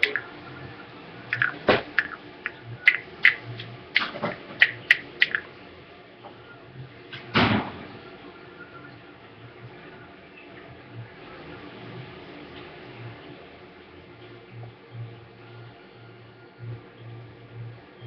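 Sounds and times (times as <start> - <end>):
handling clicks and knocks on tiles: 0.0 - 0.3, 1.3 - 3.4, 4.0 - 5.5.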